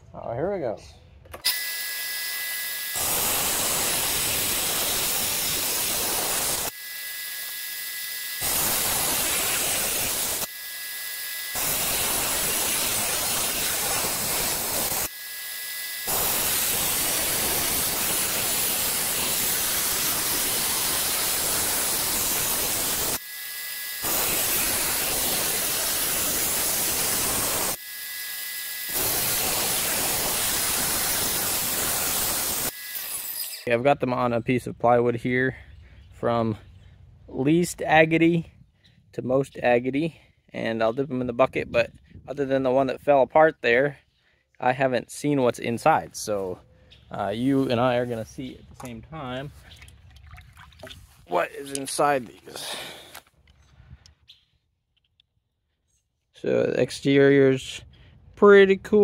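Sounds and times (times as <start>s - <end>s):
rock saw hissing grind: 2.8s - 33.7s, 51.1s - 53.2s.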